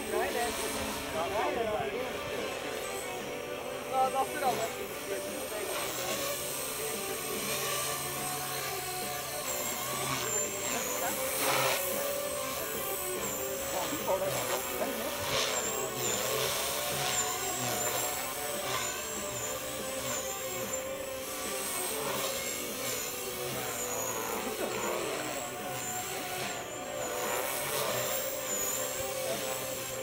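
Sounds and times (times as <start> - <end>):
rc helicopter motor whine: 0.0 - 30.0.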